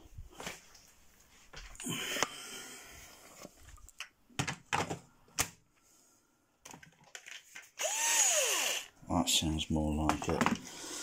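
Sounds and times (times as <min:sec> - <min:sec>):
plastic clicks and knocks: 0:04.0 - 0:05.6, 0:06.6 - 0:07.7.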